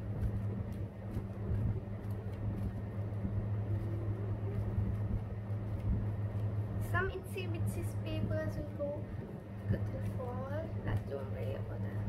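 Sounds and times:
steady low hum: 0.0 - 12.0
scissors snipping paper: 0.2 - 6.6.

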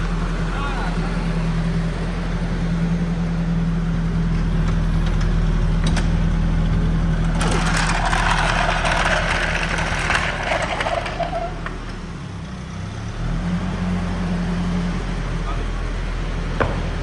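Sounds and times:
loud rough rushing noise: 7.3 - 11.6.

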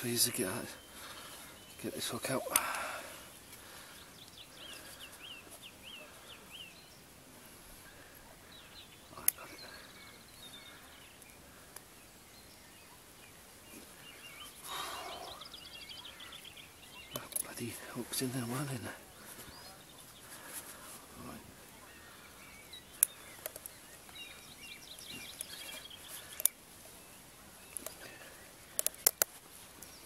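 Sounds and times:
small bird chirping: 12.3 - 30.0.

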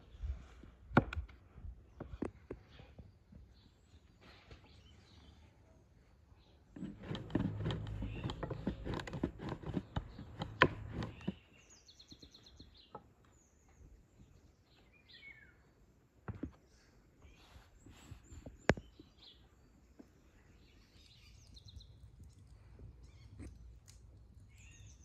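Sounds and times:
birds chirping: 6.4 - 25.0.

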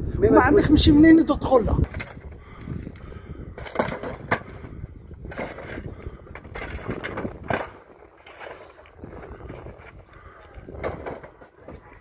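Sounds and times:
shovels scraping through brick rubble: 5.2 - 10.0.

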